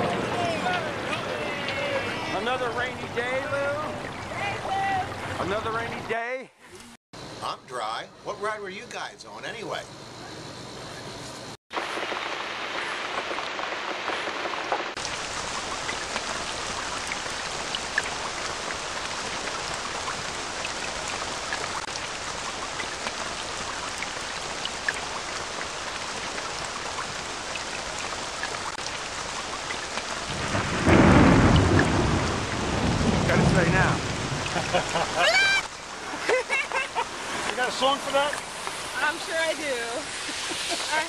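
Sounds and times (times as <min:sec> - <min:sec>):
steady rain falling: 0:00.0 - 0:06.0, 0:11.7 - 0:41.0
thunder rumble: 0:11.8 - 0:23.7, 0:29.9 - 0:35.3
rain drop ticks: 0:12.8 - 0:39.4.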